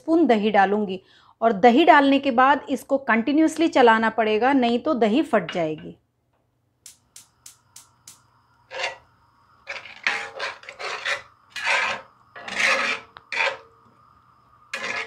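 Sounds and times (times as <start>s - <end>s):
metal spatula scraping skillet: 8.7s - 9.0s, 9.6s - 13.8s, 14.7s - 15.0s.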